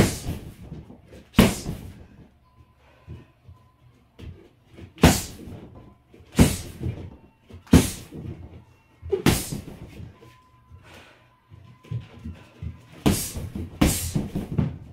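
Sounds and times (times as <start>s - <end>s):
strikes on punching bag: 0.0s - 0.6s, 1.4s - 2.0s, 5.0s - 5.6s, 6.3s - 7.0s, 7.7s - 8.2s, 9.2s - 9.9s, 13.0s - 14.8s
kicks on punching bag: 0.0s - 2.0s, 4.9s - 10.1s, 12.9s - 14.9s.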